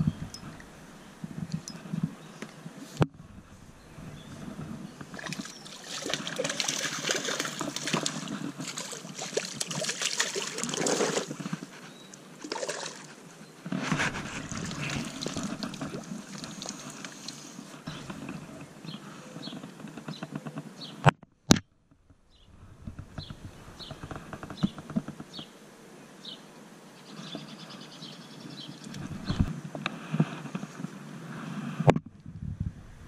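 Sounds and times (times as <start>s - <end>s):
water splashing and sloshing: 3.0s - 18.7s
clothing rustling: 13.7s - 16.3s.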